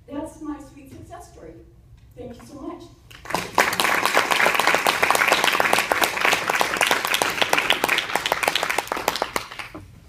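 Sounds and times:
close hand claps: 3.1 - 9.8
audience applauding: 3.2 - 9.8.

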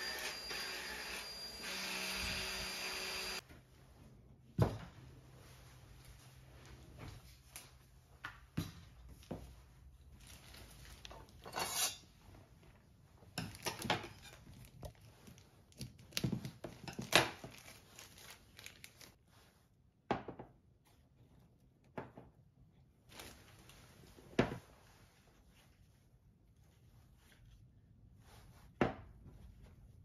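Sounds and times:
plastic wrapping rustling: 10.0 - 11.5, 13.4 - 19.2, 23.1 - 25.7.

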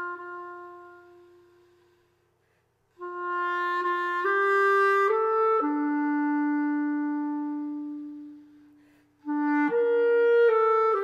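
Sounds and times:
clarinet playing slow melody: 0.0 - 2.3, 2.9 - 11.0
breath: 1.6 - 2.9, 8.6 - 9.2.

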